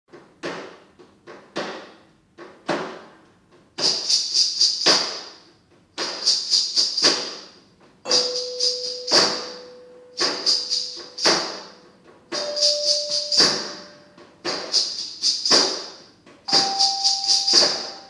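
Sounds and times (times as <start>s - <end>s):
metal bars struck with sticks: 8.1s - 18.0s.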